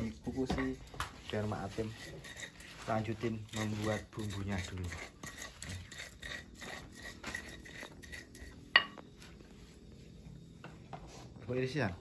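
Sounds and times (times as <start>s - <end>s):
pestle grinding in mortar: 0.0s - 9.0s.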